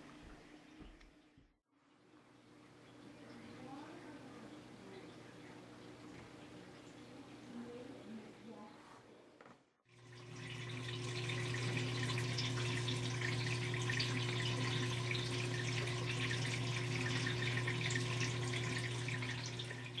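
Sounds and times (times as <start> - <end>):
filter water splashing and bubbling: 9.9 - 20.0
pump low hum: 9.9 - 20.0.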